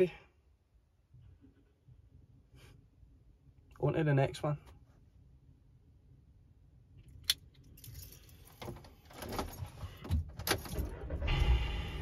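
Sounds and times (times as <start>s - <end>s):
keys jangling and clicking: 7.6s - 9.8s
van engine starting and running: 8.4s - 12.0s.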